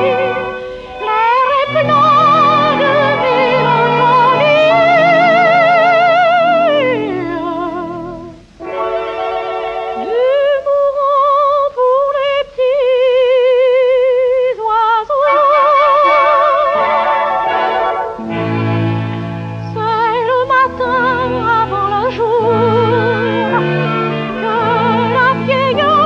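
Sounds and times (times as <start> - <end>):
old music-hall song with orchestra: 0.0 - 26.0.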